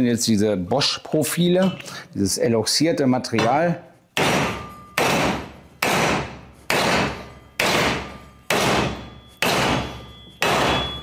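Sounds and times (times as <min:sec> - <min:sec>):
hammer striking metal: 0:03.4 - 0:11.0.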